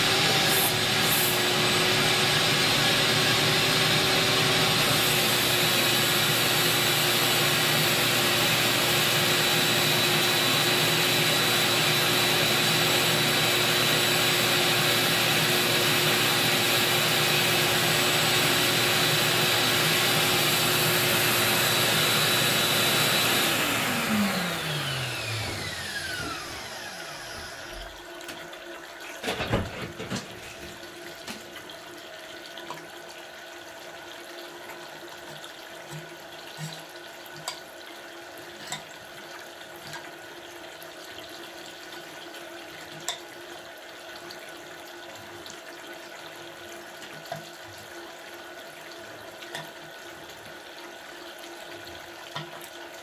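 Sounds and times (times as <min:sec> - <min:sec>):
vacuum suction machine whine: 0:00.0 - 0:28.0.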